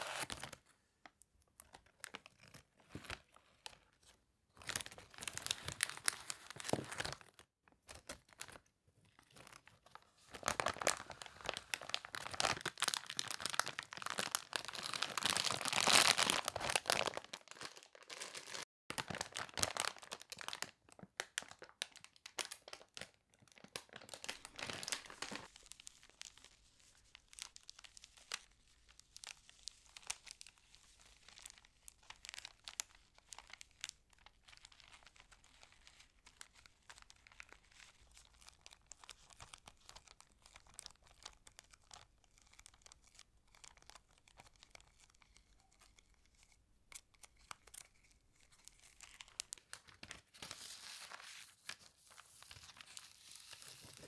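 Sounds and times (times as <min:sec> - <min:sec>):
plastic bag crinkling: 0:10.4 - 0:26.4.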